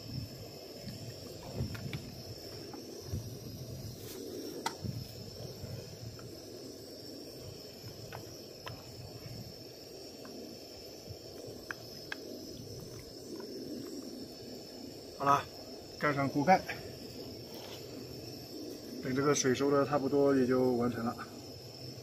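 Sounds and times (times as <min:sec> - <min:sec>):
small ticks and pops: 0:00.8 - 0:03.2, 0:04.5 - 0:05.0, 0:07.8 - 0:09.0, 0:11.3 - 0:14.2.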